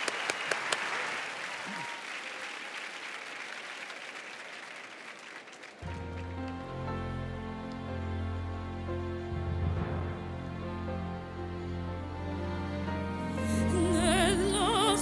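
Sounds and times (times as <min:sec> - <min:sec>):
audience applauding: 0:00.0 - 0:10.6
soft music with low notes: 0:05.8 - 0:15.0.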